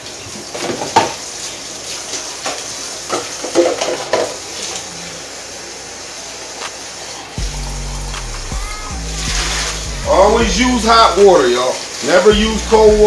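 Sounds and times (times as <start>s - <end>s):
gravy sizzling in a pan: 0.0s - 7.9s.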